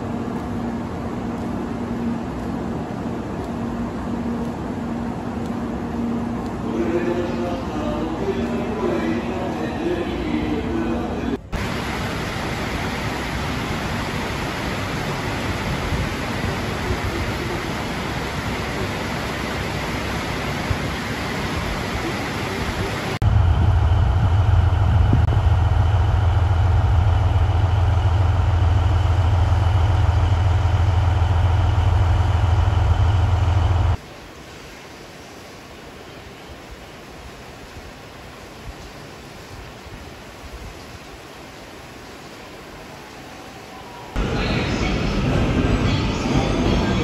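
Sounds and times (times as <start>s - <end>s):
diesel railcar idling: 0.0s - 34.0s, 44.2s - 47.0s
locomotive engine low drone: 0.0s - 34.0s, 41.1s - 47.0s.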